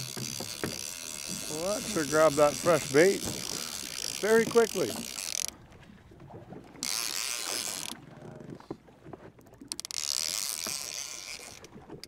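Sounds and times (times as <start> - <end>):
fishing reel drag buzzing: 0.0 - 5.6, 6.8 - 8.0, 9.7 - 11.7
reel mechanical clicks: 0.0 - 5.7, 6.7 - 8.1, 9.4 - 12.0.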